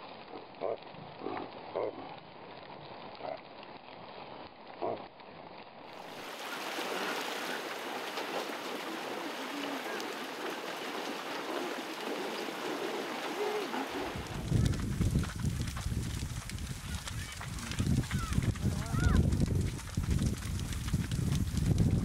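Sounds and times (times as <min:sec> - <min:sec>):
reindeer grunting: 0:00.3 - 0:02.2, 0:03.2 - 0:03.4, 0:04.8 - 0:05.1, 0:08.7 - 0:14.4
water rushing and splashing: 0:05.9 - 0:22.0.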